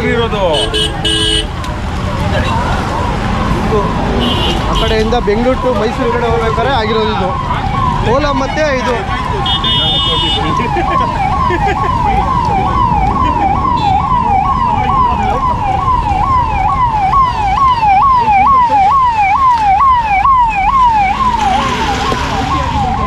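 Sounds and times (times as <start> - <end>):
traffic rumble: 0.0 - 23.0
siren yelping: 5.2 - 23.0.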